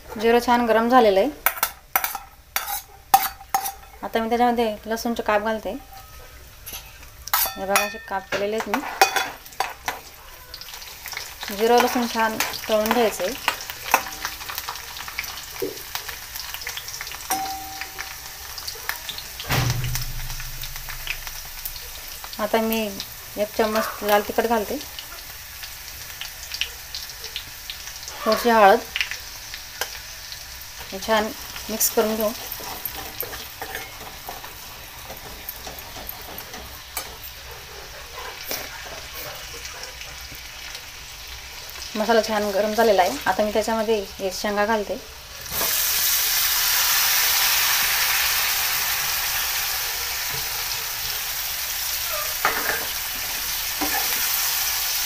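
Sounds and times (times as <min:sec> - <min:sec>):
seeds sizzling and popping in oil: 0:00.0 - 0:55.0
steel spoon stirring: 0:01.4 - 0:04.0, 0:05.8 - 0:08.2, 0:31.9 - 0:37.8.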